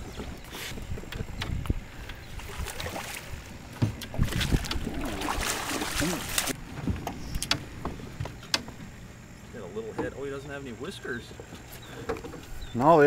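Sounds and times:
water splashing and knocking: 0:02.5 - 0:08.8.

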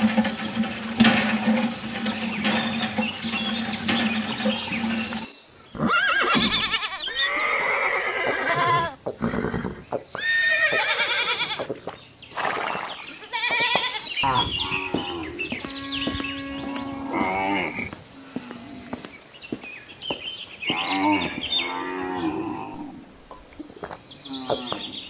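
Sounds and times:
water trickling from a tube: 0:00.0 - 0:05.3
horse whinnies: 0:05.7 - 0:11.7
cow mooing: 0:20.7 - 0:23.0.

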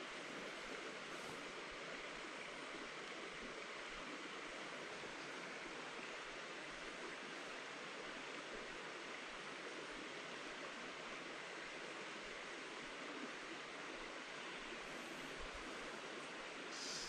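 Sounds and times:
creek flowing: 0:00.0 - 0:17.0.

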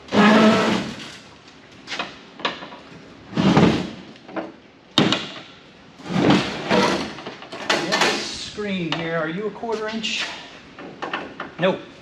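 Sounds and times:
metal parts scraping and clunking: 0:06.0 - 0:08.5.

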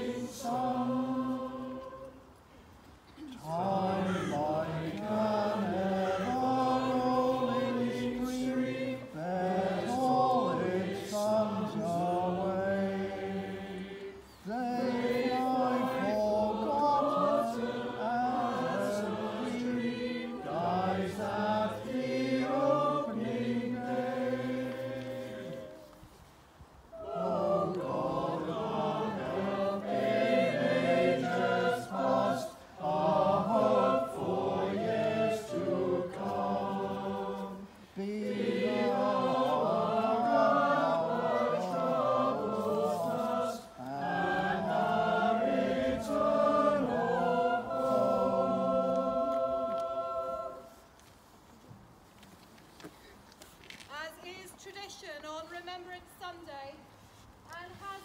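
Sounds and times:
church choir singing: 0:00.0 - 0:02.4, 0:03.2 - 0:26.1, 0:26.9 - 0:51.1.

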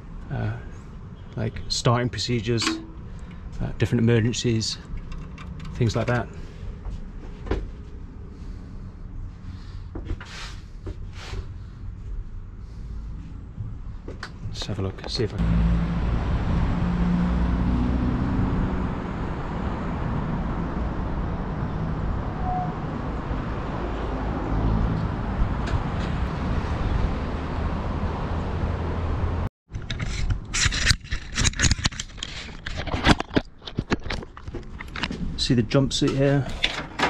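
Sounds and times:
irregular knocks and clatter: 0:04.8 - 0:06.3, 0:30.8 - 0:35.3.

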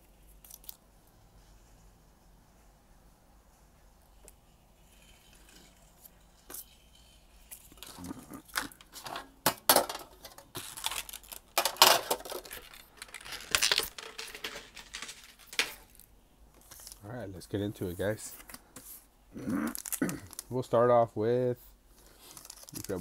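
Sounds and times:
metal tin clicking and rattling: 0:07.7 - 0:15.9.

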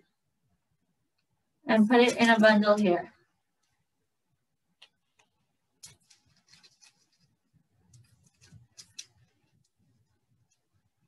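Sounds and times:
dough rustling on paper: 0:05.0 - 0:11.0.

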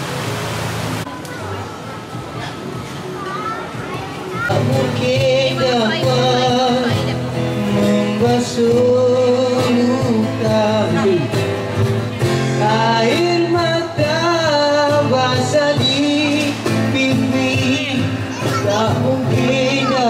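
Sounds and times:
strummed acoustic guitars: 0:02.2 - 0:20.0
man singing into microphone: 0:04.5 - 0:11.5, 0:12.4 - 0:20.0.

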